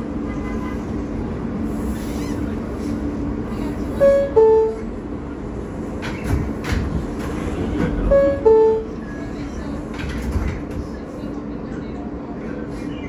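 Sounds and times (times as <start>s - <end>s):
train hum: 0.0s - 13.0s
two-note door chime: 4.0s - 4.9s, 8.1s - 9.0s.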